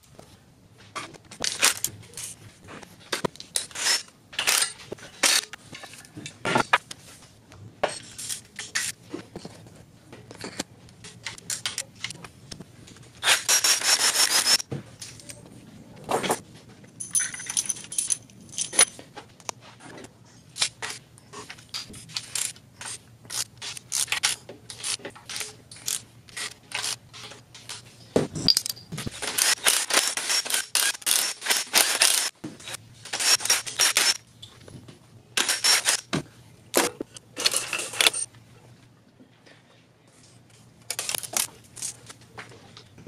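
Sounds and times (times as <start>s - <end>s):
metal tools clinking and rattling: 1.0s - 6.8s, 7.8s - 12.3s, 16.9s - 19.2s, 20.6s - 34.6s, 35.4s - 36.1s, 36.8s - 38.3s, 40.9s - 42.8s.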